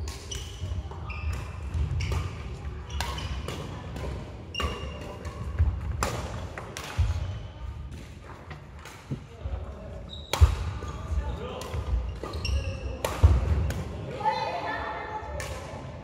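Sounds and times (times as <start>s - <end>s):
sneakers squeaking: 0.0s - 6.2s, 6.9s - 8.0s, 9.9s - 13.9s
racket hitting shuttlecock: 0.0s - 8.2s, 10.3s - 10.9s, 11.6s - 14.2s.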